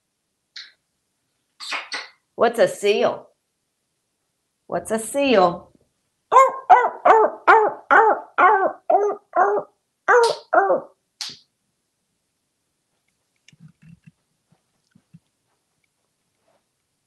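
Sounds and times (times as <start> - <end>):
parrot imitating seal barks: 6.3 - 11.0.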